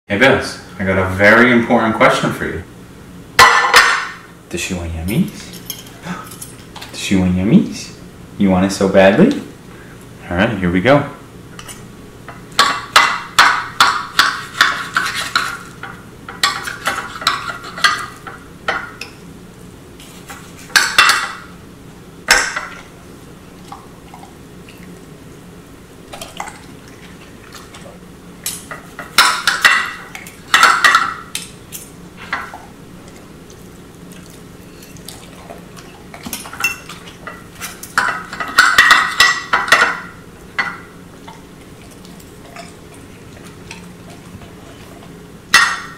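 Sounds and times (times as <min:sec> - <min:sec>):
cutlery clinking on a plate: 0:36.2 - 0:40.8.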